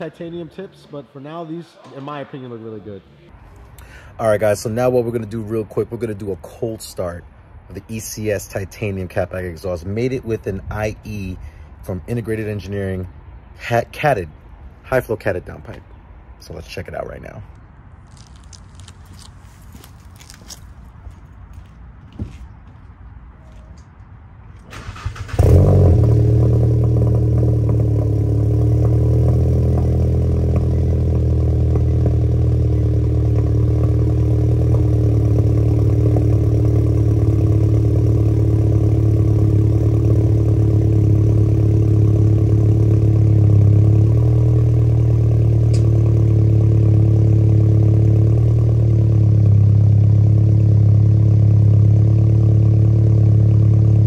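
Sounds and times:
car engine cranking: 0:24.6 - 0:46.1
car engine idling: 0:24.7 - 0:54.0.

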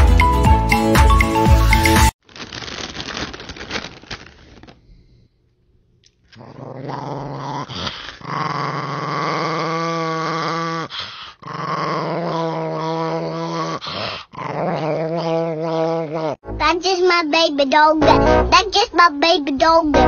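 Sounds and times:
small dog growling: 0:06.3 - 0:16.4.

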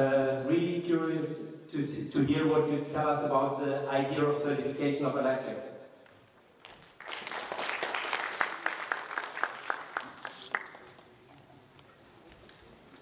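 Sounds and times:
audience applause: 0:06.6 - 0:11.8.

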